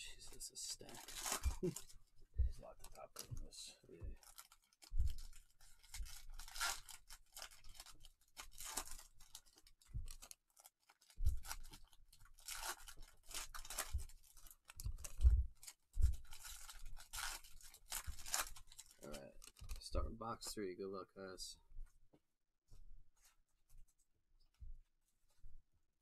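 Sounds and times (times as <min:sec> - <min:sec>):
card wrappers rustling and tearing: 0:00.5 - 0:02.0, 0:02.8 - 0:19.9.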